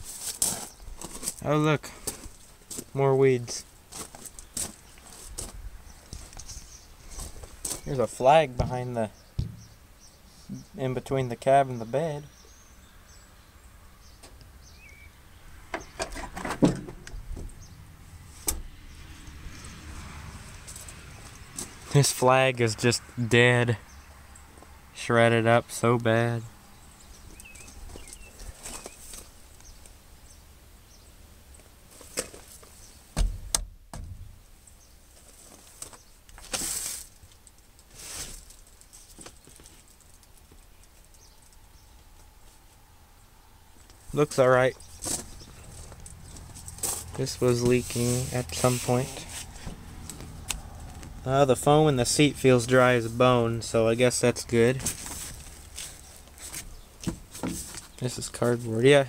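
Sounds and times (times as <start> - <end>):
low thump: 9.4 - 9.8, 33.2 - 34.3
short rustles: 35.1 - 41.6, 54.8 - 58.0.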